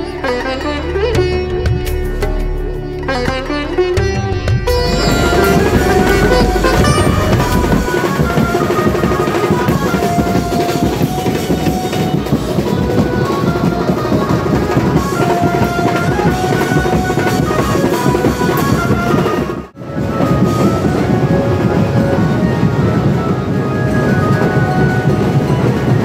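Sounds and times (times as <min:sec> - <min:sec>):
drums: 0:00.0 - 0:26.0
melody instrument short held notes: 0:04.7 - 0:12.1.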